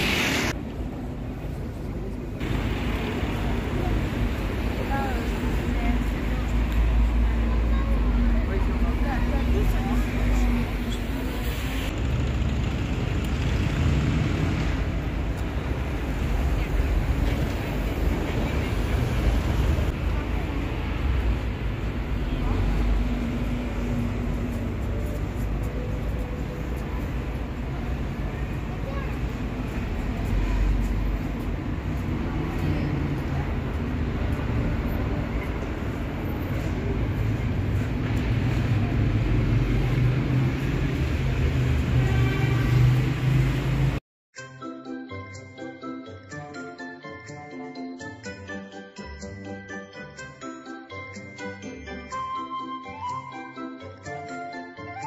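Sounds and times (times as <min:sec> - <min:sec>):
faint voices of passers-by: 0:00.0 - 0:44.0
low rumble of street traffic: 0:00.0 - 0:44.0.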